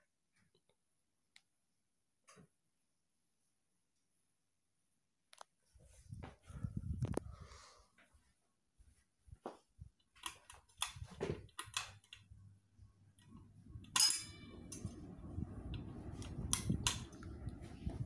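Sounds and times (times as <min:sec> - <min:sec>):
ceiling fan rumble: 0:06.0 - 0:07.7, 0:10.8 - 0:18.0.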